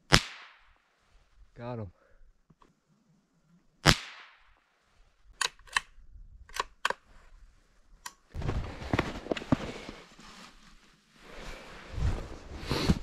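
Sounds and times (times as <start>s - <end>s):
gun action clicks: 5.4s - 7.0s
footsteps through deep snow: 8.4s - 13.0s.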